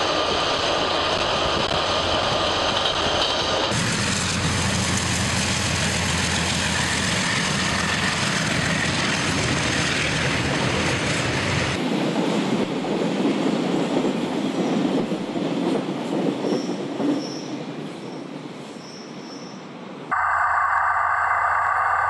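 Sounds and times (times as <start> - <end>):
train wagons clattering: 0.0 - 11.8
diesel locomotive engines droning: 0.0 - 12.6, 17.6 - 22.0.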